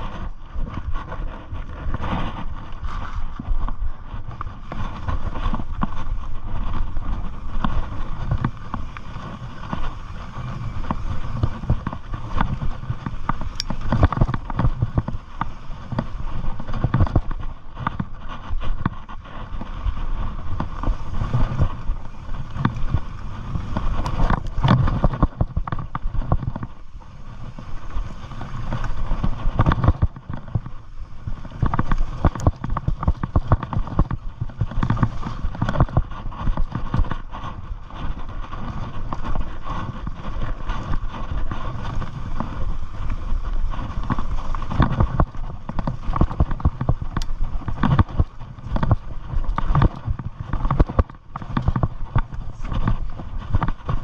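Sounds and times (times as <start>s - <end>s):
bike rattles and clicks: 0.0s - 54.0s
tyres rolling over dirt and rocks: 0.0s - 54.0s
wind noise on microphone: 0.0s - 54.0s.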